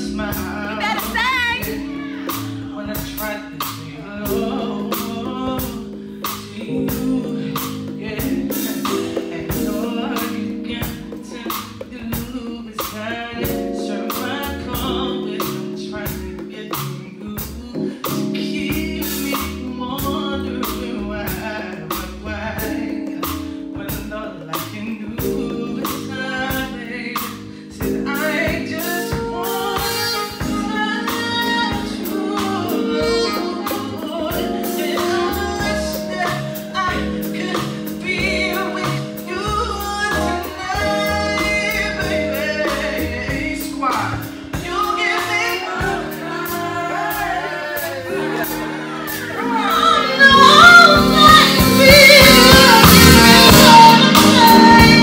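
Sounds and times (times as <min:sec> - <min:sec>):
woman singing: 0:00.0 - 0:23.0, 0:23.7 - 0:55.0
electric keyboard chords: 0:00.0 - 0:55.0
drum strokes: 0:22.6 - 0:55.0.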